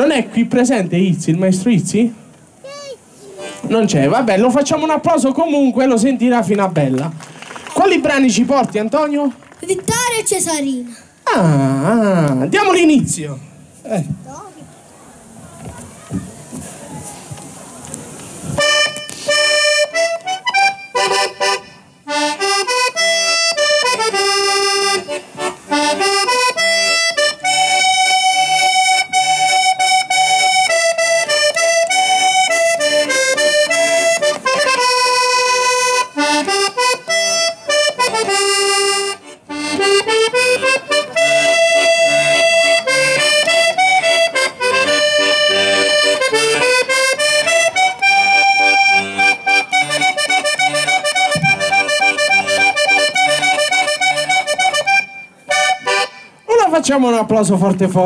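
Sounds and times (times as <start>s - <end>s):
button accordion folk melody: 3.2s - 6.6s, 18.5s - 56.8s.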